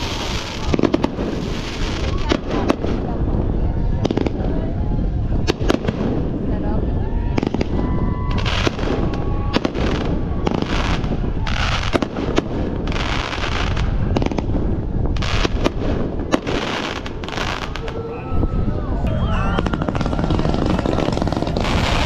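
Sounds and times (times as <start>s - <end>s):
fireworks hiss: 0.0s - 2.3s
fireworks bangs: 0.0s - 18.2s, 19.1s - 22.0s.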